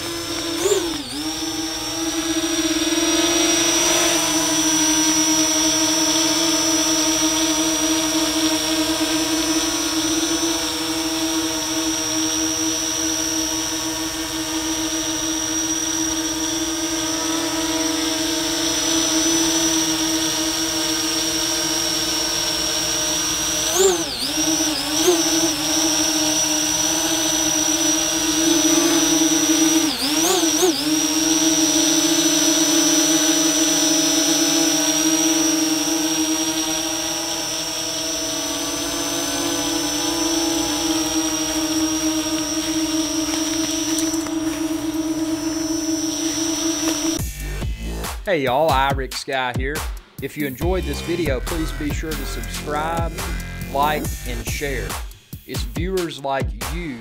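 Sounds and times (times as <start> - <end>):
drone hovering high-pitched whine: 26.7 - 30.8, 50.6 - 55.1.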